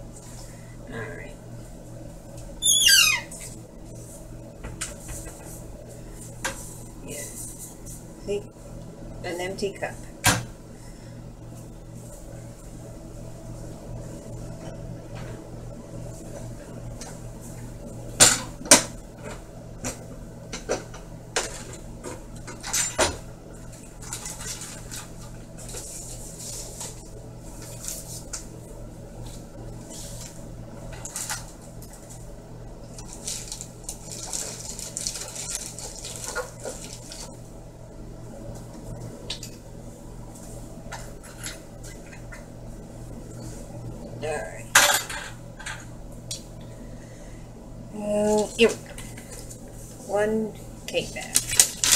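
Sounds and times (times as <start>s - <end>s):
steady low hum: 0.0s - 51.9s
soft rustling and scraping: 24.0s - 28.5s.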